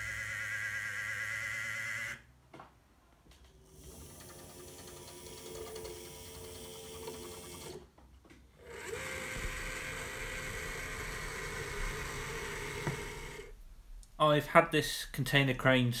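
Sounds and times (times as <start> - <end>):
small electric motor whirring: 0.0 - 2.3, 8.6 - 13.5.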